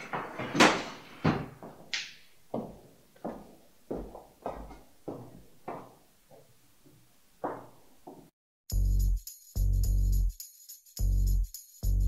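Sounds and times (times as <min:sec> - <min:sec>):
footsteps on hard floor: 0:00.0 - 0:08.3.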